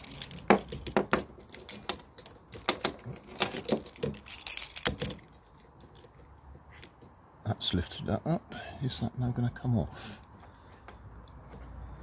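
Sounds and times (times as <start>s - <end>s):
keys jangling: 0.0s - 2.4s, 3.2s - 5.5s.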